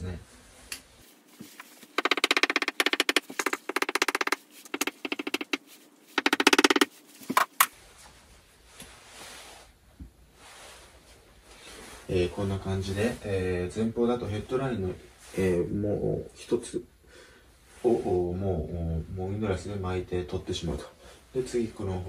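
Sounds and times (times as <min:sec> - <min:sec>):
marker pen squeaking on whiteboard: 0:01.9 - 0:07.7.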